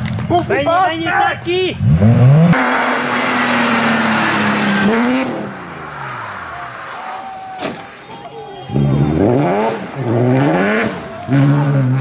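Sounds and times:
rally car engine high revs: 0:01.8 - 0:06.5, 0:08.7 - 0:12.0.

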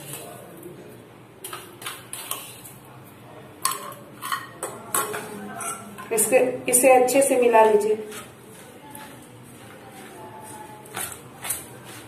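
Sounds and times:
metal spoon clinking on bowls: 0:03.6 - 0:06.3.

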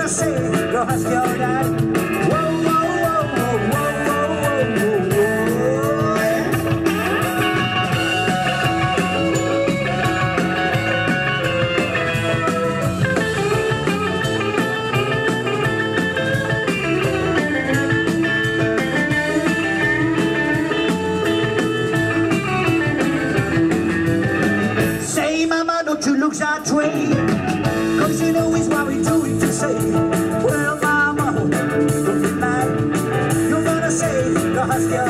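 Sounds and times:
steady drums: 0:00.0 - 0:35.0
electric guitar solo: 0:01.4 - 0:25.1.

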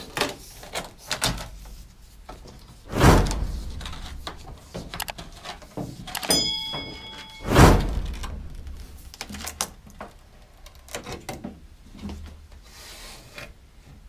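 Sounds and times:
whoosh: 0:02.9 - 0:04.6, 0:07.4 - 0:09.1
short bell chime: 0:06.3 - 0:07.8.

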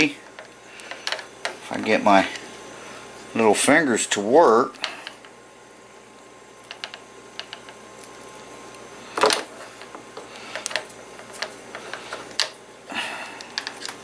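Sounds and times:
hands handling wire clicks: 0:00.2 - 0:01.6, 0:06.6 - 0:12.6, 0:13.4 - 0:14.0.

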